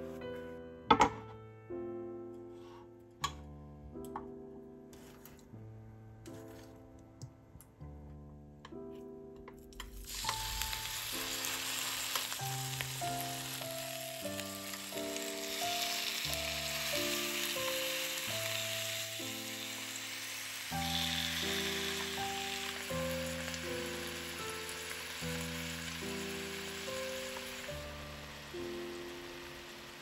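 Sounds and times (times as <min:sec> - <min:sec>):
vegetables sizzling in oil: 0:09.8 - 0:30.0.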